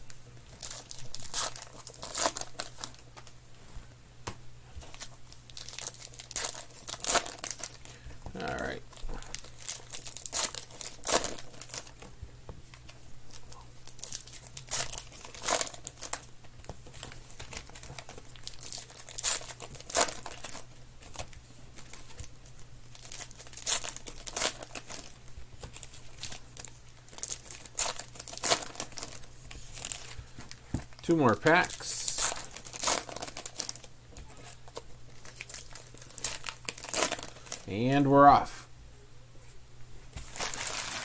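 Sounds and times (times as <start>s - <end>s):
wrapper crinkling and tearing: 0.5s - 3.3s, 4.9s - 12.1s, 13.3s - 22.3s, 22.9s - 37.7s, 40.2s - 41.0s.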